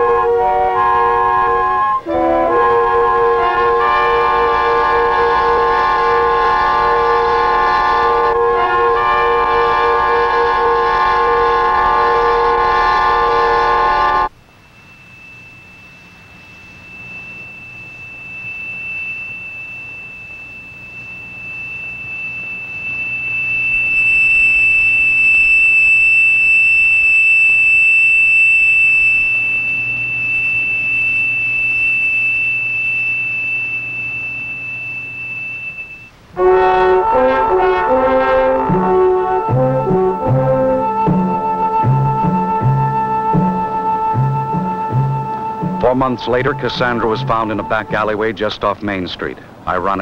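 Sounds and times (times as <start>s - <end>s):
sustained orchestral chord: 0.0s - 14.3s, 36.4s - 49.1s
high steady tone: 0.0s - 50.0s.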